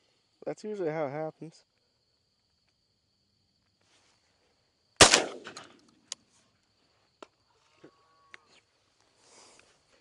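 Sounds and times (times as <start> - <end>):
shotgun shot: 5.0 - 5.8.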